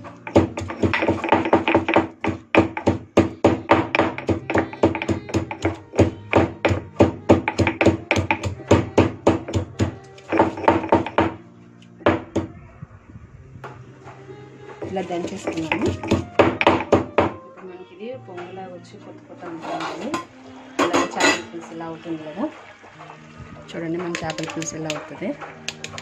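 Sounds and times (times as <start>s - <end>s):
pestle pounding in stone mortar: 0.2s - 11.4s, 12.0s - 12.5s, 14.8s - 17.4s, 24.0s - 26.0s.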